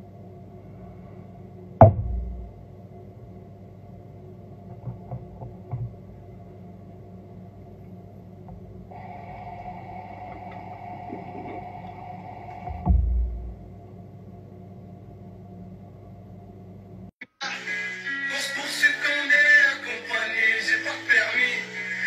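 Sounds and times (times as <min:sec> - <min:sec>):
thump: 0:01.8 - 0:02.5, 0:12.7 - 0:13.6.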